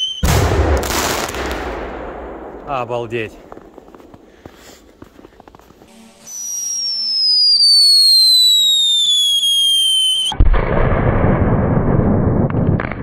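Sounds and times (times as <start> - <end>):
firecracker whistle falling: 0.0 - 0.5, 5.9 - 10.4
firecracker bang: 0.2 - 3.7.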